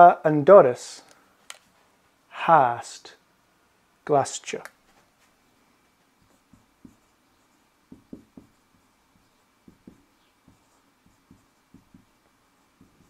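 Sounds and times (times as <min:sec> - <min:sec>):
marker pen writing on whiteboard: 0:06.0 - 0:13.0.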